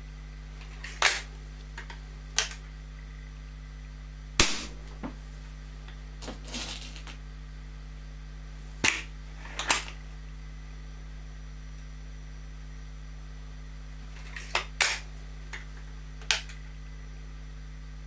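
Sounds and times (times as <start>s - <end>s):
air rifle shot: 4.4s - 5.0s
rattle of handling: 6.2s - 7.2s.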